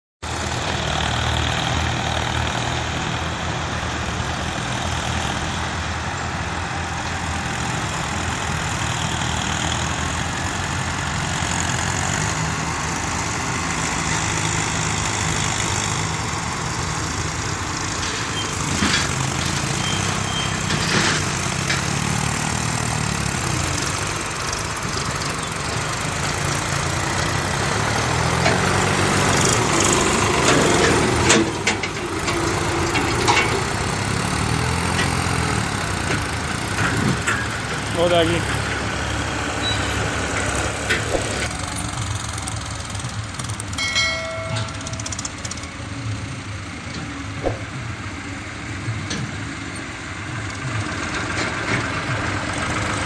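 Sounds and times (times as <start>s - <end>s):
tractor diesel engine running: 0.2s - 53.0s
sharp knocks: 47.4s - 47.8s.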